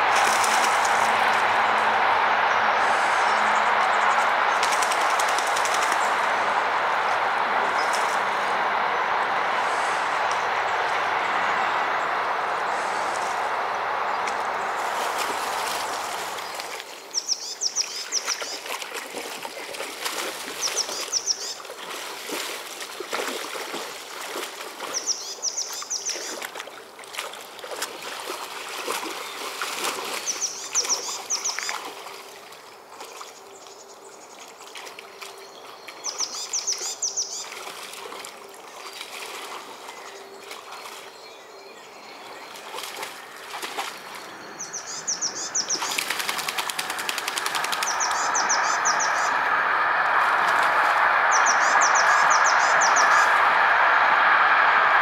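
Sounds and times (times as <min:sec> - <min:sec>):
dog splashing in water: 0:00.1 - 0:01.4, 0:14.8 - 0:16.9, 0:17.8 - 0:25.3, 0:26.0 - 0:33.3, 0:34.7 - 0:41.1, 0:42.3 - 0:44.3, 0:45.6 - 0:49.0
bird chirping: 0:39.9 - 0:50.7, 0:51.3 - 0:53.4.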